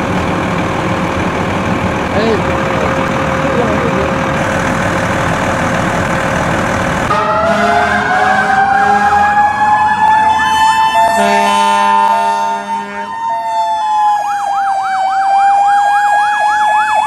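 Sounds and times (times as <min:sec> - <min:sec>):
steady engine noise: 0:00.0 - 0:10.4
rising siren wail: 0:02.6 - 0:17.0
low horn: 0:07.1 - 0:09.4, 0:10.5 - 0:13.2
wavering electronic siren: 0:07.1 - 0:17.0.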